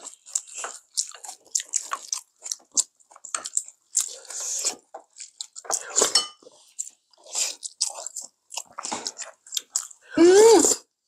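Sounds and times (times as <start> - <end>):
chewing and biting: 0.0 - 10.1
person humming mm: 10.1 - 10.9.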